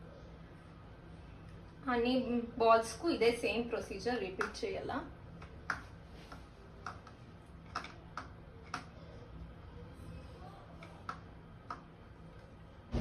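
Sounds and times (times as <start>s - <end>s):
faint low hum: 0.0s - 13.0s
bowls and plastic tray clicking: 6.8s - 8.9s.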